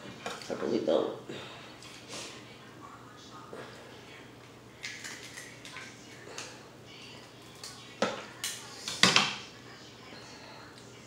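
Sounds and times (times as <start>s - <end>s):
crab legs cracking: 4.8s - 6.5s.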